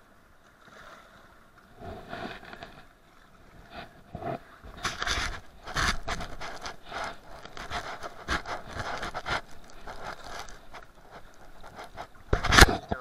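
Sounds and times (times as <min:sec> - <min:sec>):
fabric rubbing on microphone: 0:01.8 - 0:02.8, 0:03.7 - 0:12.9.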